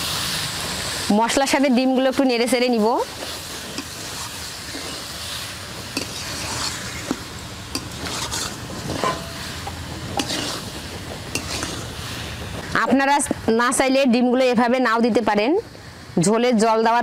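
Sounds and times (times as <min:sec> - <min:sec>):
frying sizzle: 0:00.0 - 0:15.8
spatula scraping metal pan: 0:05.9 - 0:12.0.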